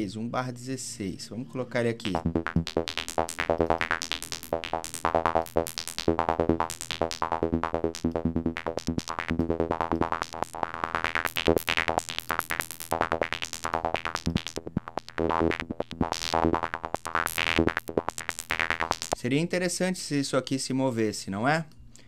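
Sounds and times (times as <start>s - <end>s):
pulsing synth sequence: 2.0s - 19.2s.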